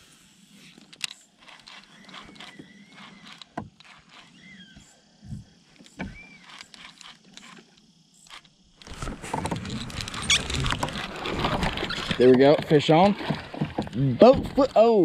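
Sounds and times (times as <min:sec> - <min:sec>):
fishing rod and kayak handling: 0:00.6 - 0:15.0
bird chirps: 0:04.1 - 0:05.0, 0:06.1 - 0:06.6.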